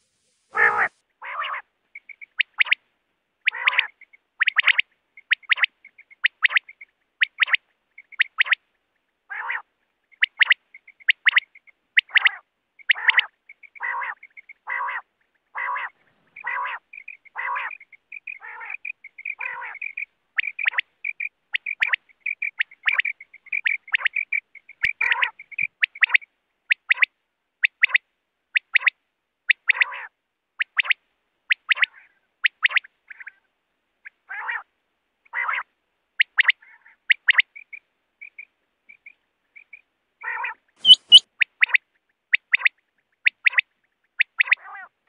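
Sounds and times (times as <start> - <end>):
fast quiet twittering: 0.0 - 2.8, 3.4 - 28.0, 36.2 - 44.6
quail calling: 0.5 - 2.8, 3.4 - 8.6, 9.3 - 34.7, 35.3 - 45.0.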